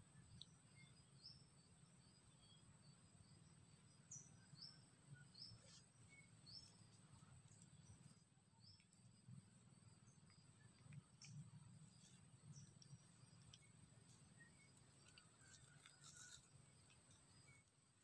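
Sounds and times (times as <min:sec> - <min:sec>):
faint high bird chirps: 0:00.0 - 0:09.1.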